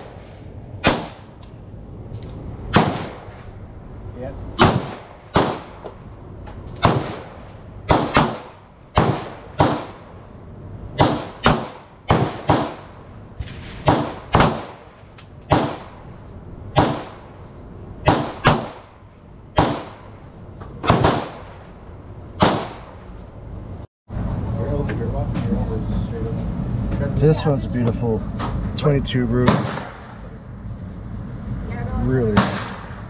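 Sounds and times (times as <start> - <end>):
pistol shots: 0.0 - 1.4, 2.7 - 3.4, 4.6 - 5.9, 6.8 - 10.2, 11.0 - 16.0, 16.7 - 17.3, 18.0 - 20.1, 20.8 - 21.6, 22.4 - 23.0, 29.4 - 30.2, 32.4 - 33.0.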